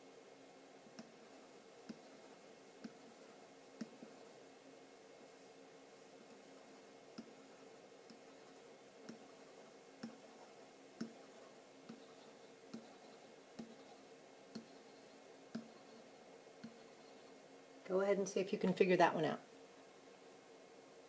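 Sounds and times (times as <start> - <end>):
faint steady hum: 0.0 - 21.0
marker tapping on whiteboard: 11.0 - 16.0, 16.6 - 17.2.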